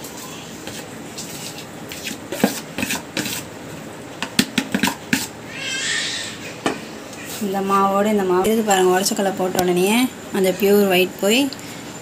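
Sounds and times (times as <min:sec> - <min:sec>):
spoon scooping flour: 0:00.1 - 0:03.5.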